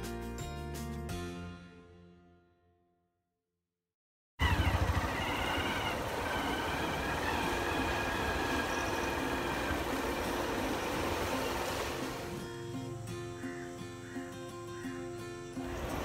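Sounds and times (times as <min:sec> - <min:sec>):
road traffic rushing: 0:04.4 - 0:12.4.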